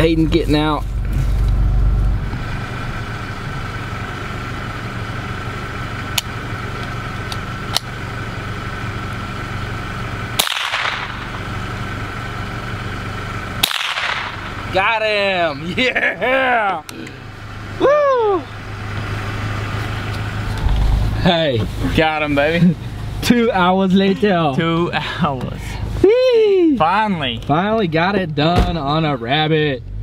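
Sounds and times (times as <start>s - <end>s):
vehicle engine idling: 0.0s - 30.0s
rifle shots: 10.4s - 11.4s, 13.6s - 14.6s.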